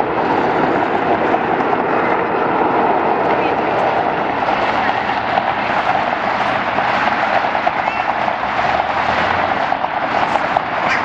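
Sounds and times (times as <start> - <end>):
jet engines taxiing: 0.0 - 11.0.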